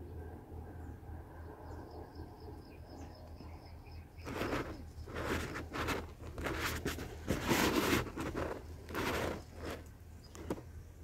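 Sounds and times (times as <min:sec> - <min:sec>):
dry grass nest rustling: 0:04.2 - 0:10.7.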